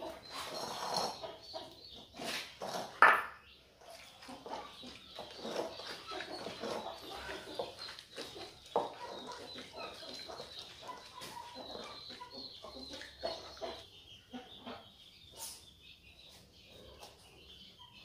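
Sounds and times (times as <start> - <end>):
eel rubbing against ceramic bowl: 0.2 - 3.0.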